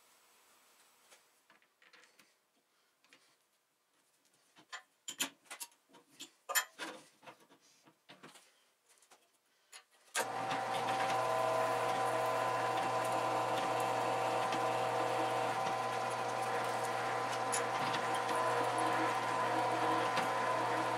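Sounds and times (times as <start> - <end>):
clicks and knocks of steel parts: 4.6 - 8.4
drill press motor humming: 10.2 - 20.9.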